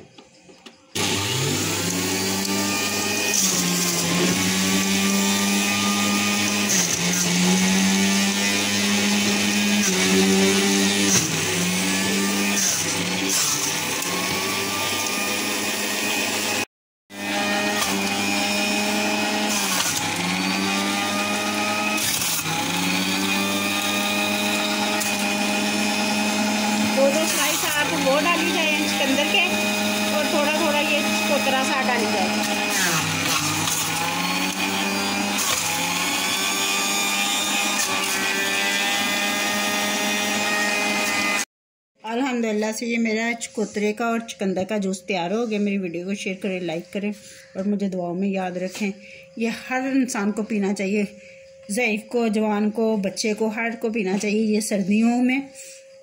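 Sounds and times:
electric juicer motor humming: 0.9 - 41.5.

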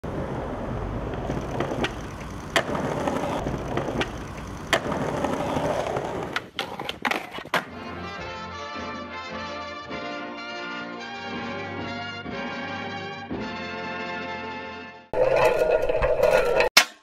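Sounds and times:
skateboard wheels rolling on pavement: 0.0 - 8.1
skateboard clacks: 0.1 - 7.8
brass-led music: 7.7 - 15.1.

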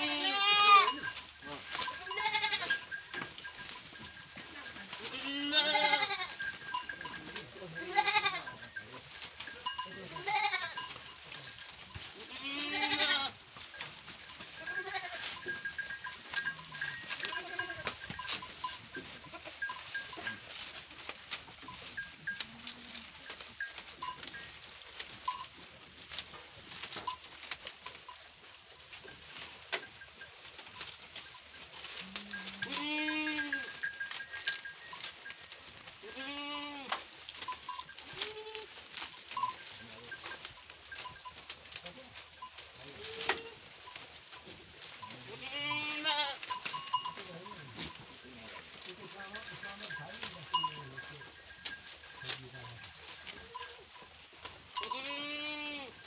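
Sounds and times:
goats bleating: 0.0 - 3.0, 4.6 - 8.8, 9.7 - 11.0, 12.2 - 13.4, 14.5 - 18.5, 19.1 - 20.4, 31.9 - 34.6, 36.0 - 37.0, 38.0 - 38.8, 42.9 - 43.8, 45.0 - 53.8, 54.8 - 56.0
goats chewing leafy fodder: 0.0 - 56.0.

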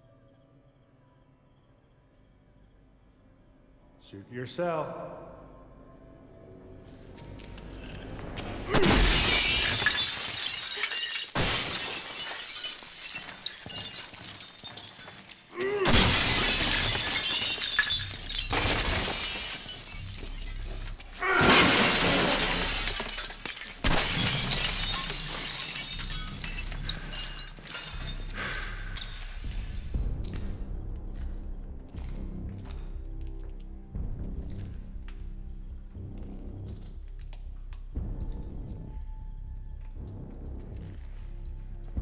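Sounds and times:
glass shattering: 7.6 - 29.5.

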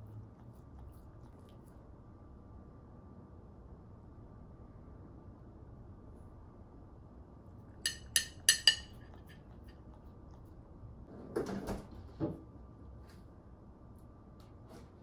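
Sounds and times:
puppy licking food: 0.0 - 1.9
metal spoon clinking on plate: 7.8 - 9.8.

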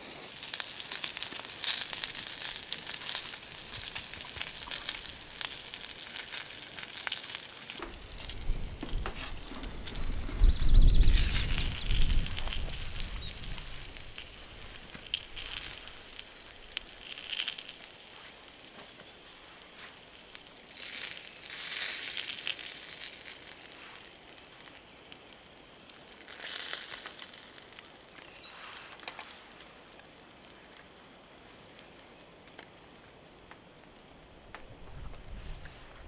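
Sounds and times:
wood stove fire crackling: 0.0 - 36.0
rustling noise: 1.8 - 24.1, 28.4 - 29.8, 34.8 - 36.0.

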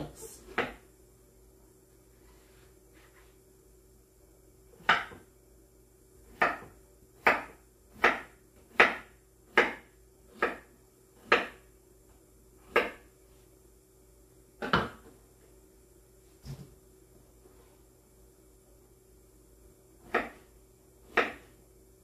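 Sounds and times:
knife chopping on cutting board: 4.8 - 5.2, 6.3 - 11.6, 12.7 - 13.1, 20.0 - 20.5, 21.1 - 21.5.

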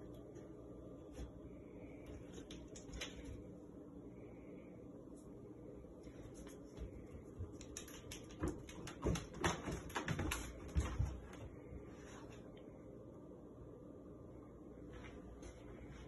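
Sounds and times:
dog claws clicking on tile floor: 2.3 - 3.4, 6.4 - 11.1.

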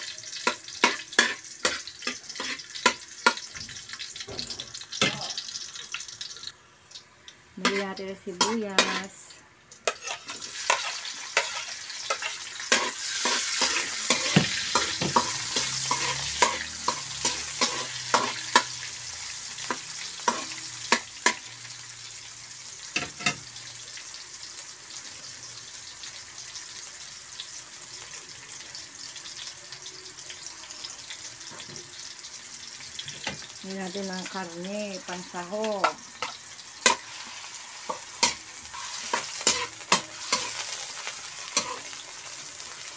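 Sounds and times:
garlic and onion sizzling in oil: 0.0 - 42.9
spatula scraping pan: 0.4 - 3.5, 7.6 - 18.9, 36.2 - 42.3.

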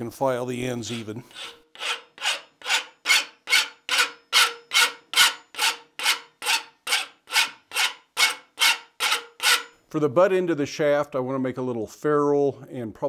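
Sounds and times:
hand file rasping on steel: 0.8 - 9.7.

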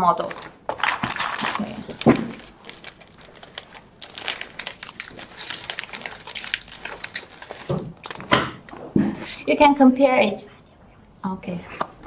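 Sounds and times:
plastic bag crinkling: 0.2 - 8.4.

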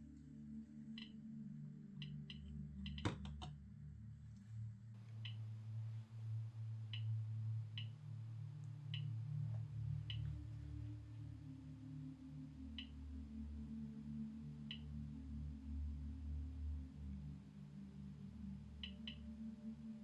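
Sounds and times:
soft ambient music: 0.0 - 20.0
button click: 2.9 - 3.5.

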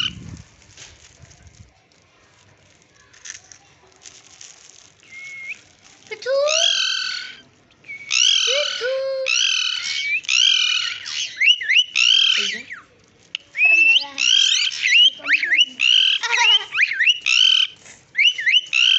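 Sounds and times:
parakeet high-pitched calls: 0.0 - 0.3, 6.2 - 12.8, 13.6 - 18.9.

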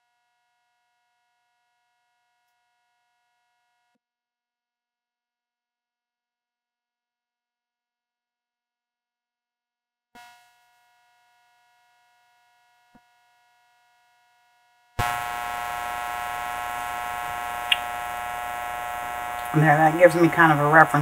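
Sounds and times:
electrical hum: 15.0 - 21.0
faint steady tone: 15.0 - 21.0.

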